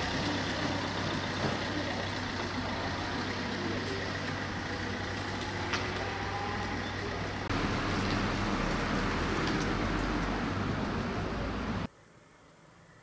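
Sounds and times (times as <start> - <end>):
traffic engine rumble: 0.0 - 13.0.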